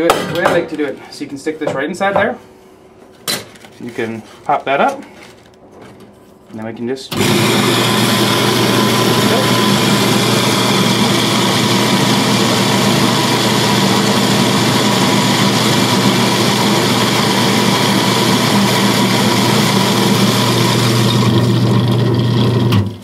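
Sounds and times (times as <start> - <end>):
coffee grinder grinding beans: 7.1 - 23.0
grinder motor hum: 7.1 - 23.0.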